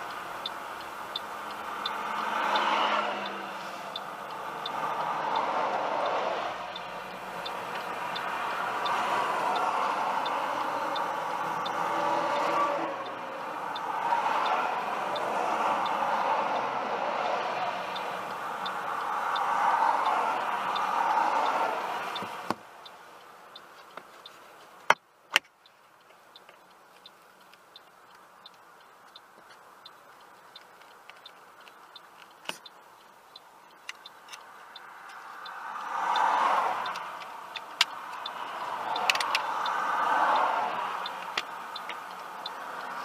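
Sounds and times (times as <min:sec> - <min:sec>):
faint regular ticking: 0:00.0 - 0:43.0
tyre hiss on wet road: 0:01.5 - 0:05.5
sharp clicks: 0:23.6 - 0:43.0.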